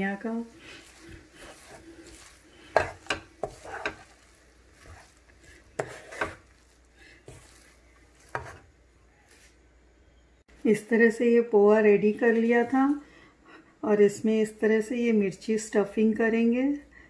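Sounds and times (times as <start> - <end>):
wooden spatula scraping pan: 0.0 - 8.8.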